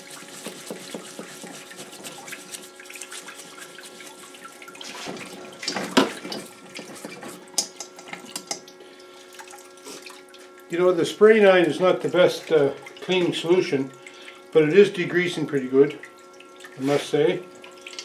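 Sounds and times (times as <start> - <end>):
brush scrubbing metal: 0.0 - 6.0
cleaning fluid splashing on metal: 0.0 - 8.7
pump humming: 0.0 - 18.0.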